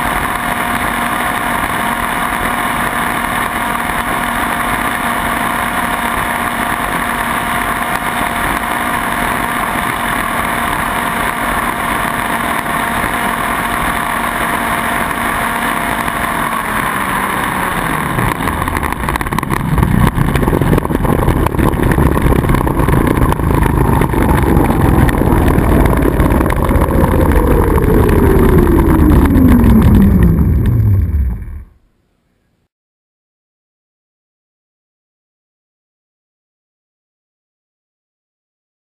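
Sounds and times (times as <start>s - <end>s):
model two-stroke engine running: 0.0s - 31.6s
propeller whine sliding down: 0.0s - 31.8s
low rumble: 16.5s - 31.8s.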